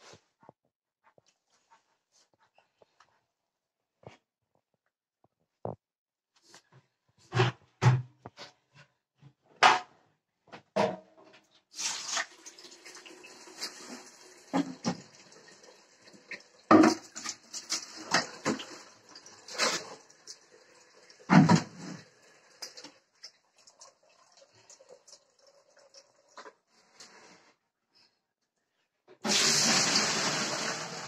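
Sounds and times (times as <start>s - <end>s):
plastic buckets knocking and clattering: 7.2s - 11.4s, 13.6s - 15.2s, 16.2s - 20.0s, 21.3s - 22.1s
water running from a tap: 11.8s - 21.3s, 21.9s - 26.6s, 29.3s - 31.0s.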